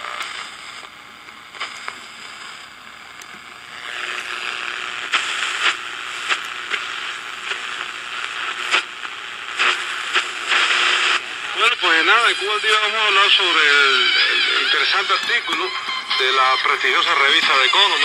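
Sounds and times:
radio static hiss: 0:00.0 - 0:18.0
sharp static crackles: 0:00.0 - 0:18.0.

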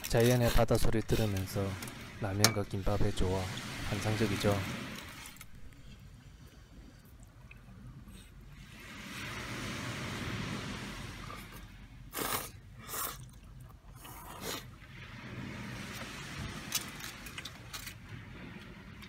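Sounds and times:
sea waves washing on shore: 0:00.0 - 0:06.2, 0:08.3 - 0:12.9, 0:14.6 - 0:19.0
slurping noodles from a bowl: 0:11.2 - 0:14.8.

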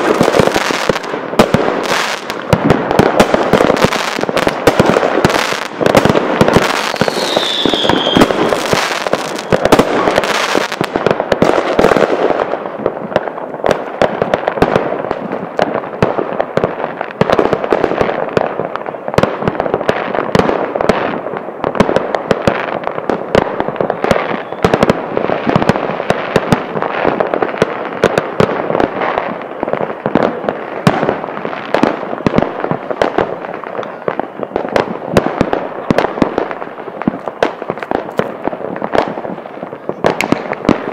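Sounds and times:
fireworks bangs and crackling: 0:00.0 - 0:40.9
falling firework whistle: 0:06.5 - 0:10.8, 0:23.9 - 0:24.9.

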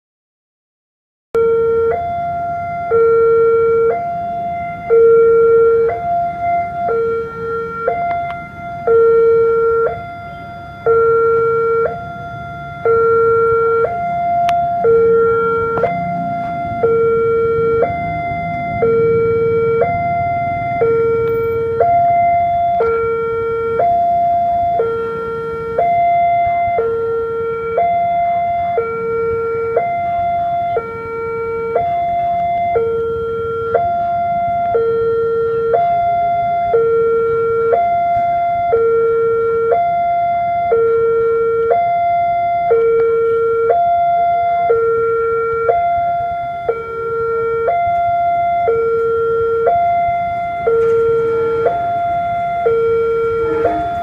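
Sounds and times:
two-tone crossing alarm: 0:01.4 - 0:54.0.

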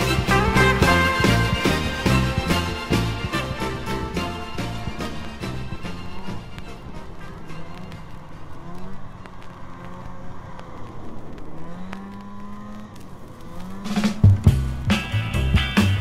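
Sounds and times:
loud music: 0:00.0 - 0:08.2, 0:14.2 - 0:16.0
snowmobile engine running: 0:00.0 - 0:16.0.

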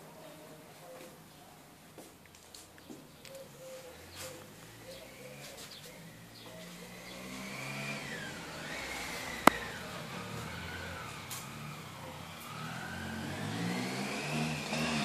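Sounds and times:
engine running and revving: 0:04.3 - 0:15.0.

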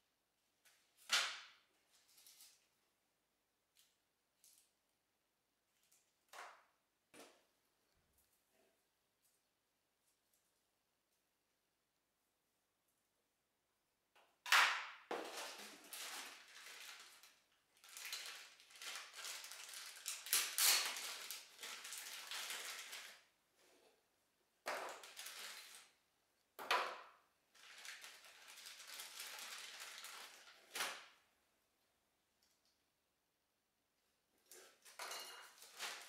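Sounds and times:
plastic bag crinkling: 0:15.2 - 0:23.3, 0:24.9 - 0:26.0, 0:27.5 - 0:31.2.

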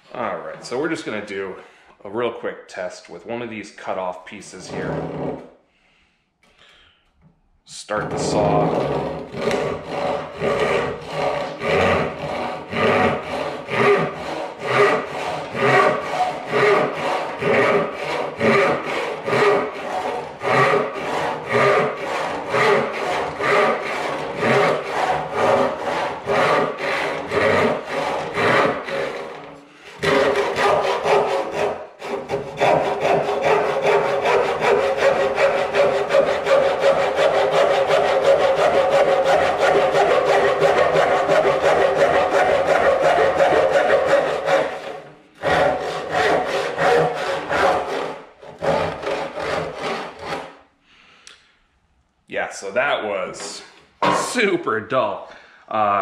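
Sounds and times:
hand saw cutting wood: 0:04.6 - 0:05.5, 0:07.9 - 0:50.6.

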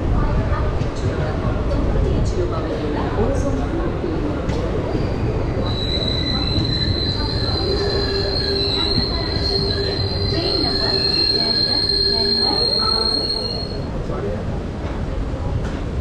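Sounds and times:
train running rumble: 0:00.0 - 0:16.0
train wheels squealing on rails: 0:04.7 - 0:13.9.

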